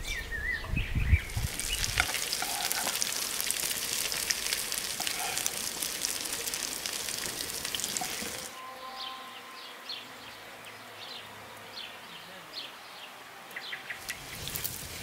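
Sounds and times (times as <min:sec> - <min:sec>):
birds chirping: 0:00.0 - 0:15.0
cutlets sizzling in hot oil: 0:01.3 - 0:08.5.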